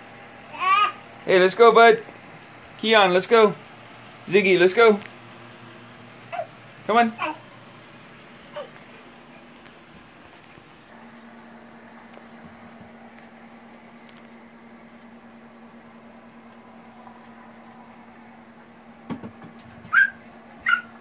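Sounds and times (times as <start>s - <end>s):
steady low hum: 0.0s - 21.0s
knock: 19.1s - 19.6s
high-pitched rising cries: 19.9s - 21.0s.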